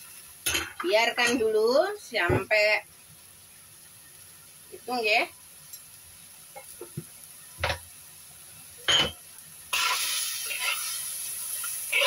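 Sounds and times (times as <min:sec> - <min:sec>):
steady sizzle: 0:00.0 - 0:12.0
stirring vegetables in wok: 0:09.6 - 0:12.0.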